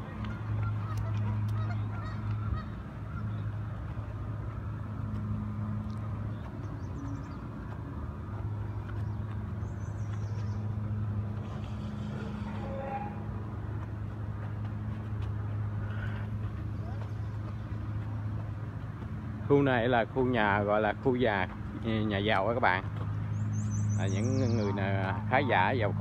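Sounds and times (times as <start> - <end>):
geese honking: 0.0 - 4.5, 10.0 - 13.6
low hum: 0.0 - 19.5.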